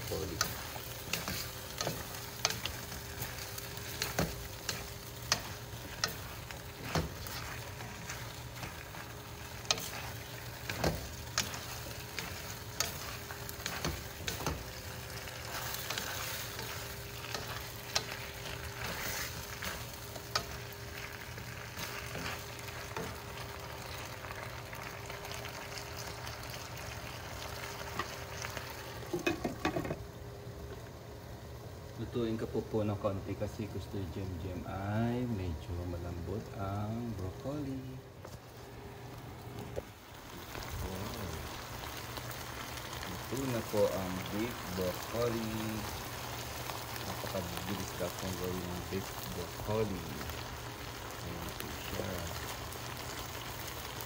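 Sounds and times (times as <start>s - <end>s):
food sizzling in a wok: 0.0s - 54.0s
spatula scraping and clicking on pan: 0.4s - 14.7s, 15.4s - 20.7s.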